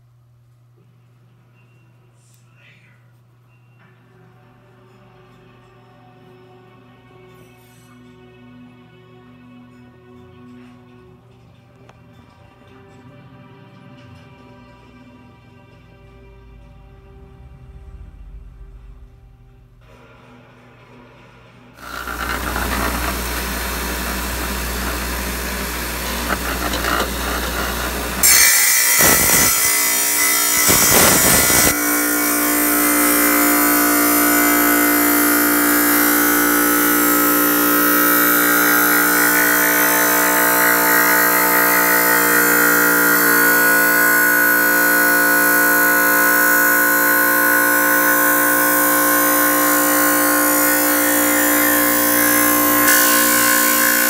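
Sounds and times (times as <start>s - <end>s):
motor hum: 21.8s - 28.3s
power tool grinding rock: 21.8s - 54.0s.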